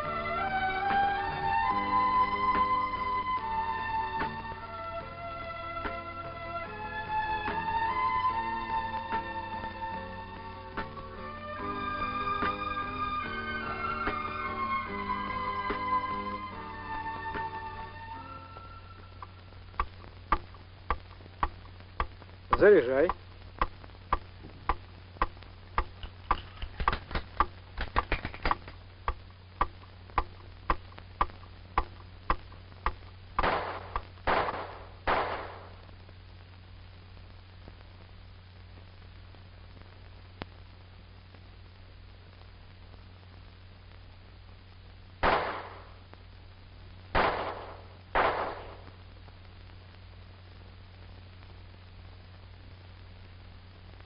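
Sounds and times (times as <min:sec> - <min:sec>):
steady ticking: 0:19.1 - 0:34.2
pistol shots with reverberant tail: 0:33.4 - 0:35.7, 0:45.2 - 0:45.9, 0:47.2 - 0:48.8.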